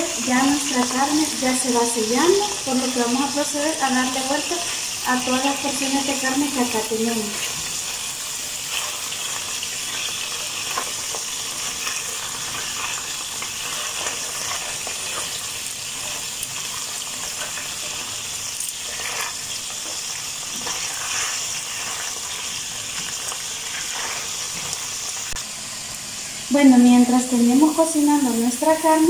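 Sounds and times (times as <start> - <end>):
beef sizzling in hot oil: 0.0 - 29.0
tongs clicking and scraping: 8.6 - 24.8.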